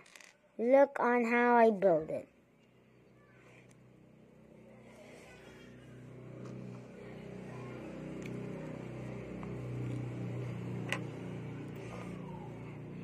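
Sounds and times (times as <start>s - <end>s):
plastic toy bricks clicking: 0.0s - 0.4s
low mechanical hum: 2.3s - 13.0s.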